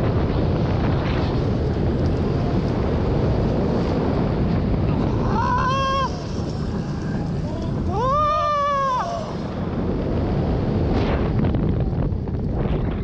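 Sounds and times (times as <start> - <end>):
roller coaster rumbling on track: 0.0 - 13.0
wind rushing over microphone: 0.0 - 13.0
rider yelling: 5.2 - 9.4.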